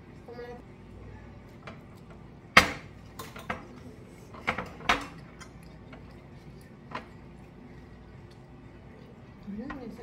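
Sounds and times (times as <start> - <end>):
dishes clinking on glass table: 2.5 - 3.8, 4.4 - 5.6.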